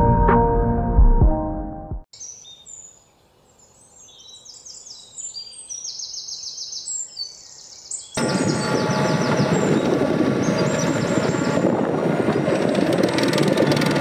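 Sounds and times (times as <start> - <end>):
background music: 0.0 - 2.1
faint outdoor background: 1.5 - 14.0
birds chirping and trilling: 2.2 - 12.9
fast high bird trill: 8.1 - 11.7.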